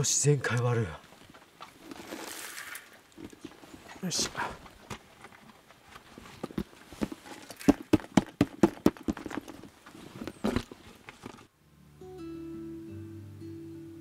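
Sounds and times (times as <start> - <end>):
soft acoustic guitar music: 11.5 - 14.0.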